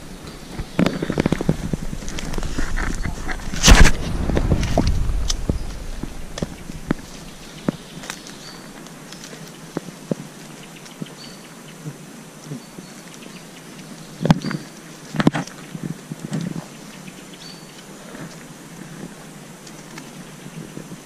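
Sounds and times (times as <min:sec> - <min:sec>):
footsteps crunching on pine needles: 0:00.0 - 0:11.2
twigs snapping: 0:00.3 - 0:11.2.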